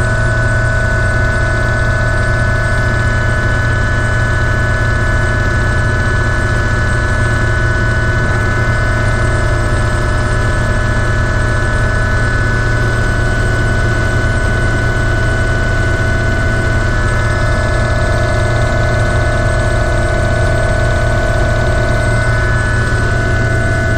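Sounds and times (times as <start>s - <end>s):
helicopter turbine whine: 0.0s - 23.9s
rotor and transmission hum: 16.0s - 23.9s.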